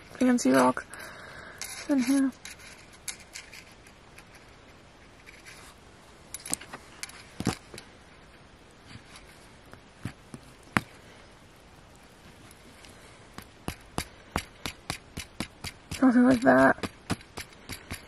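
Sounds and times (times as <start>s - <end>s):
toy rock crumbling and scraping: 1.6s - 5.8s, 13.4s - 18.0s.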